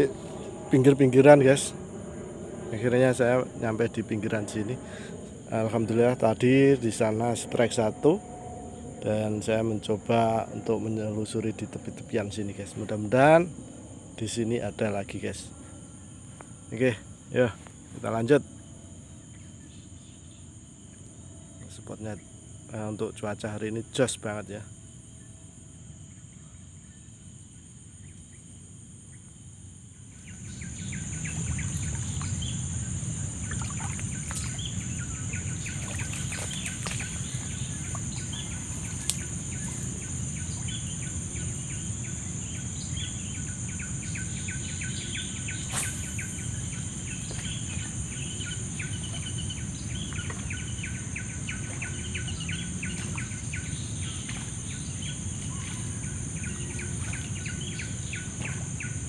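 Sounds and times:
high insect buzz: 0.0s - 59.0s
birds chirping: 30.2s - 59.0s.

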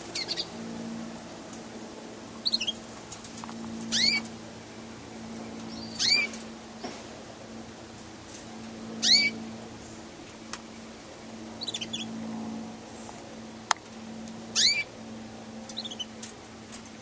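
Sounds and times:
steady low hum: 0.0s - 17.0s
canaries chirping loudly: 0.1s - 0.5s, 2.4s - 2.8s, 3.9s - 4.3s, 5.6s - 6.4s, 9.0s - 9.4s, 11.6s - 12.2s, 14.6s - 14.9s, 15.7s - 16.1s
soft canary twittering: 0.1s - 0.5s, 2.4s - 2.8s, 3.8s - 4.3s, 5.6s - 6.4s, 9.0s - 9.4s, 11.6s - 12.2s, 14.5s - 14.9s, 15.7s - 16.1s.

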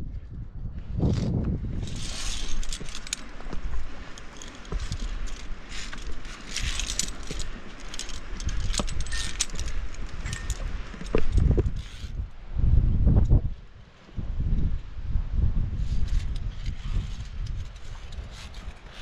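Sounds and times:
wind rumble on microphone: 0.0s - 19.0s
metal carabiners clinking: 1.8s - 12.2s, 16.0s - 19.0s.

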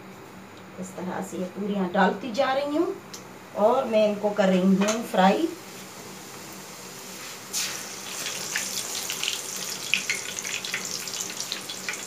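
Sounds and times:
deep-frying in hot oil sizzling: 5.2s - 12.0s
oil crackles and pops: 7.5s - 12.0s.

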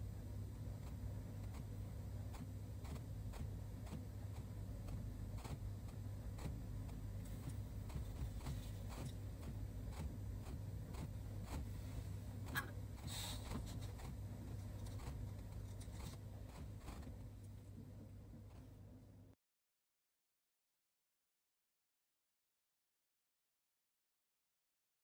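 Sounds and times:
low room hum: 0.0s - 19.4s
faint regular ticks: 0.8s - 17.2s.

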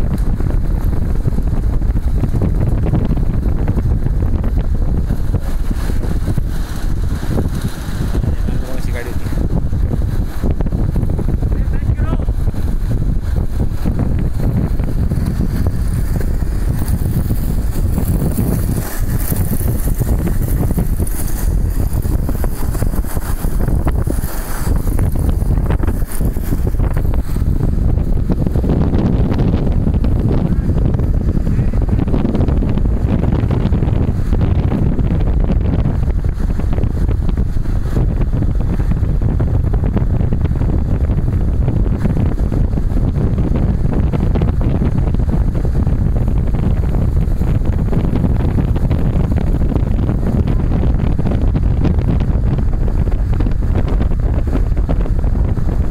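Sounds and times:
low road rumble: 0.0s - 55.9s
wind buffeting microphone: 0.0s - 55.9s.

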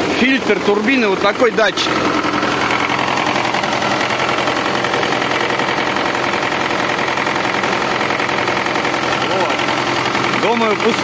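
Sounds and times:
diesel engine idling: 0.0s - 11.0s.

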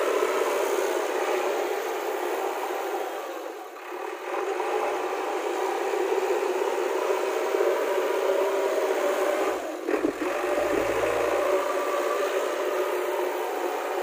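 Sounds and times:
diesel engine whir: 0.0s - 14.0s.

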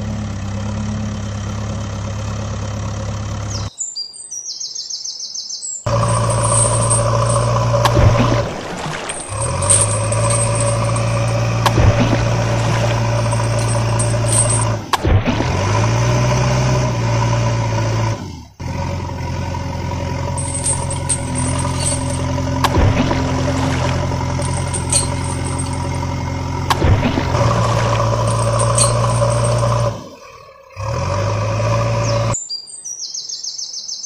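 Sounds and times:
birds chirping: 3.5s - 11.4s, 32.0s - 34.0s.

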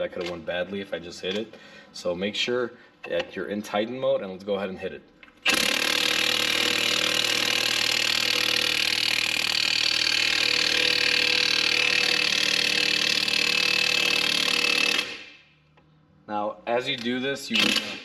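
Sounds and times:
impact wrench hammering: 5.4s - 15.4s, 17.6s - 18.0s.

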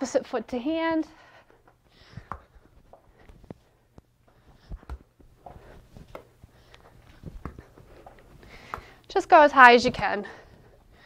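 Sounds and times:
sneakers thudding on floor: 7.1s - 9.0s.

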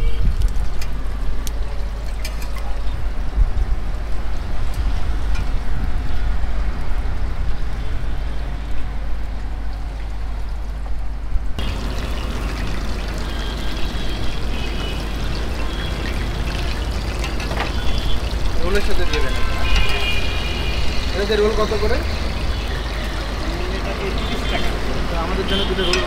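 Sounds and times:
oil sizzling in a pan: 11.6s - 18.7s.

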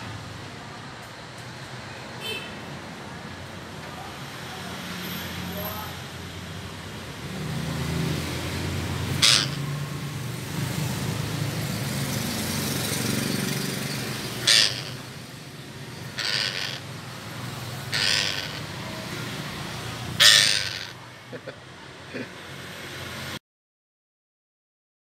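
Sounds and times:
parakeet screeching: 9.1s - 9.7s, 13.2s - 15.2s, 15.9s - 19.0s, 20.1s - 21.0s.

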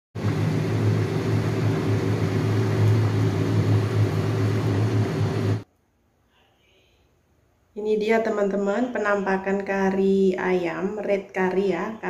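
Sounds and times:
low mechanical hum: 0.2s - 7.1s.

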